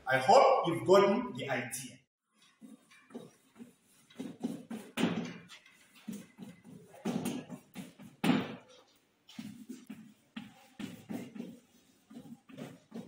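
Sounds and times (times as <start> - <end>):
chalk scraping on chalkboard: 2.4 - 13.0
chalk knocking on board: 2.6 - 13.0.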